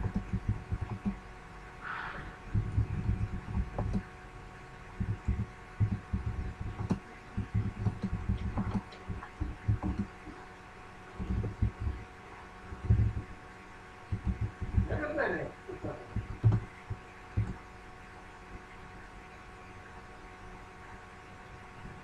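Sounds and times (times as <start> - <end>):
keyboard keystrokes thumping: 0.0 - 1.2, 2.6 - 4.0, 5.0 - 10.1, 11.2 - 12.0, 12.8 - 13.2, 14.1 - 14.9, 16.1 - 16.6, 17.4 - 17.6
faint electrical hum: 0.0 - 22.0.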